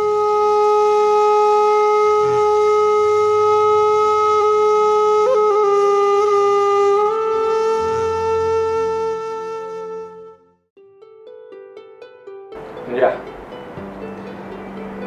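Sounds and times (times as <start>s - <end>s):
woodwind holding long note: 0.0s - 10.7s.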